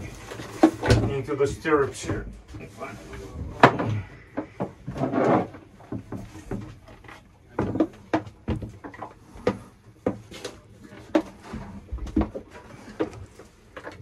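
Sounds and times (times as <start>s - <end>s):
knocks and creaks of climbing steps: 0.0s - 14.0s.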